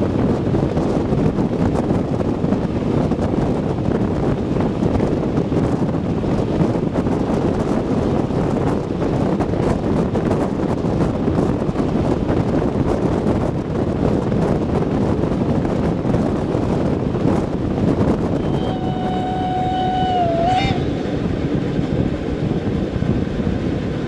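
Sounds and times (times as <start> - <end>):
steam locomotive exhaust and running: 0.0 - 24.0
wind on microphone: 0.0 - 24.0
steam whistle: 18.4 - 21.1.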